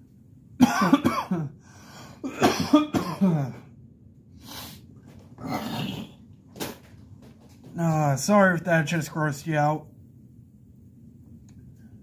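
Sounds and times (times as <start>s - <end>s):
man coughing: 0.6s - 1.6s, 2.2s - 3.7s.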